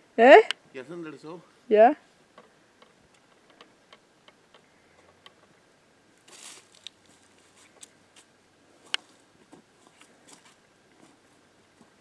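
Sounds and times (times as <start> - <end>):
faint footsteps on dry dirt: 6.1 - 12.0
foot scuff: 6.3 - 8.3.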